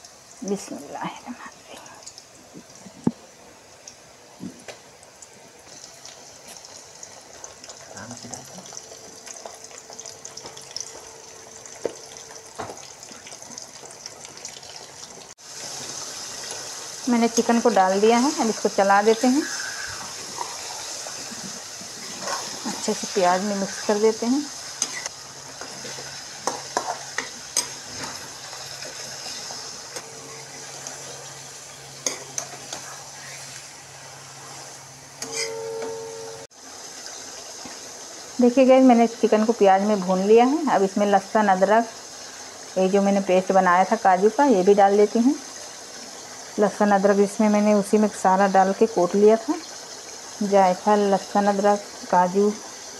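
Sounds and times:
chicken sizzling in hot oil: 3.5s - 35.6s, 36.5s - 52.9s
steel spoon scraping a pan: 24.7s - 25.1s, 34.5s - 35.7s.

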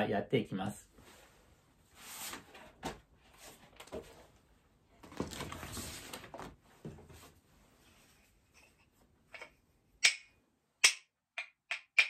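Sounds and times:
picture cards rustling and sliding: 1.9s - 4.4s, 5.0s - 8.0s.

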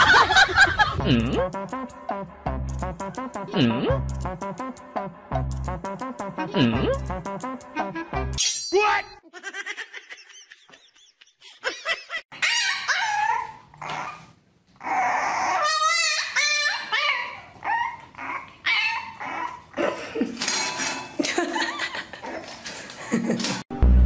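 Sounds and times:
puppy yapping and whining: 12.3s - 19.8s.

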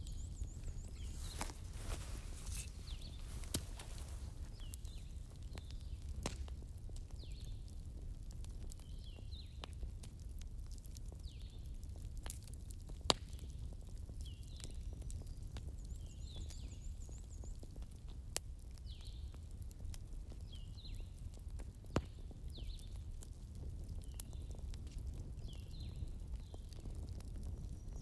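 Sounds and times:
small birds chirping: 0.0s - 6.2s, 7.1s - 7.8s, 14.2s - 17.9s, 18.8s - 19.4s.

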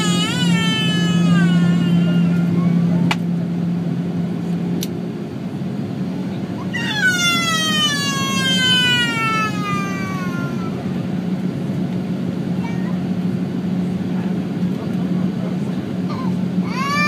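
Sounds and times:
airliner cabin rush: 5.8s - 17.0s.

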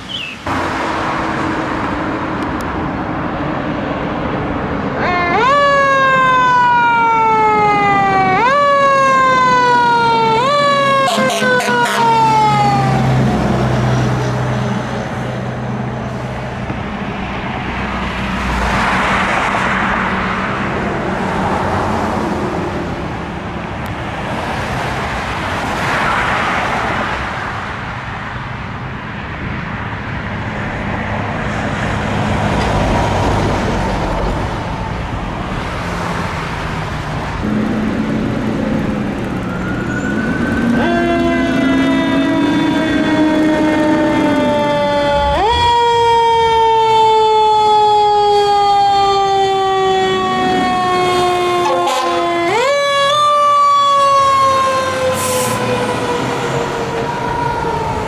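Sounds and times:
fire trucks driving by: 0.0s - 58.0s
electronic siren wailing: 5.0s - 13.3s, 37.4s - 58.0s.

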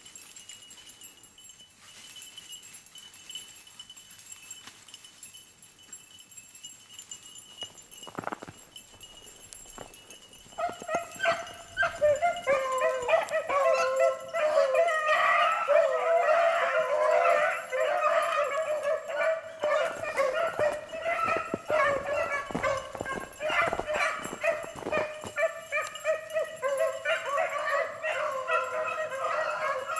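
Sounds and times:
hounds baying: 7.7s - 29.9s.

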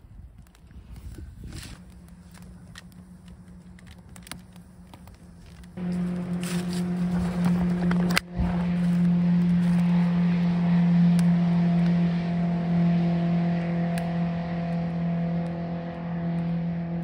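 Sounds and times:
wood fire crackling: 0.0s - 12.0s
loud motor drone: 0.9s - 17.0s.

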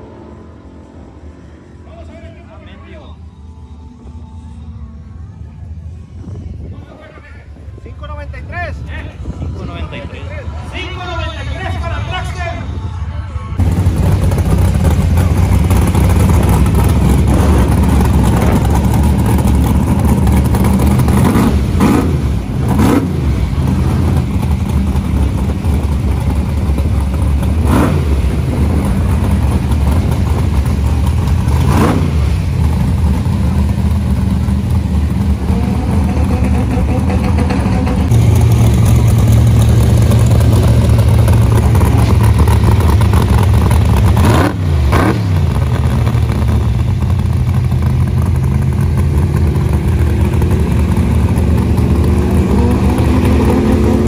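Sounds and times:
car engine running: 13.6s - 54.0s.

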